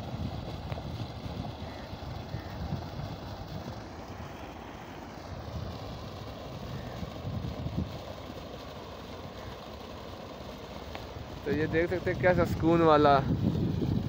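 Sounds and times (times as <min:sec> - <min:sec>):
water gushing and splashing: 0:00.0 - 0:14.0.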